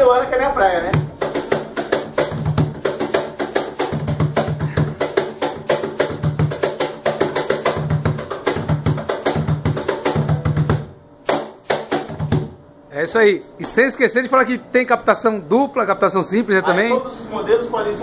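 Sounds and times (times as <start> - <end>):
cajon played by hand: 0.9 - 12.6.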